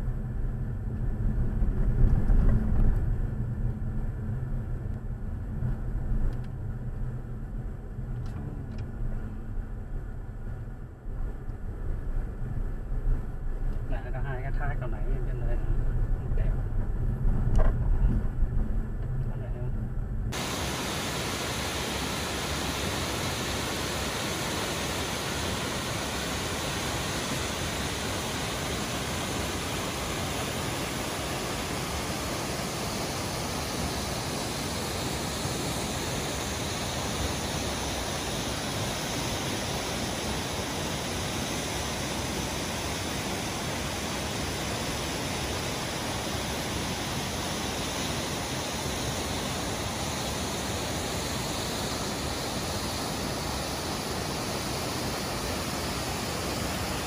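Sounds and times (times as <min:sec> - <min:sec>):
water rushing over rocks: 0:20.4 - 0:51.5.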